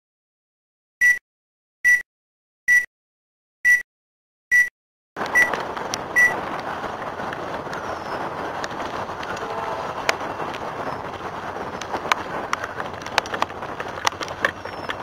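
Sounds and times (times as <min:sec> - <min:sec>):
countdown beeps: 0:02.7 - 0:02.9, 0:04.5 - 0:04.7
outdoor roadside noise: 0:05.2 - 0:15.0
wind on microphone: 0:05.2 - 0:15.0.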